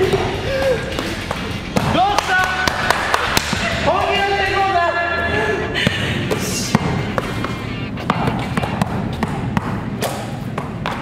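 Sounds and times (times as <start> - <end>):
basketball bouncing on court: 8.0 - 11.0.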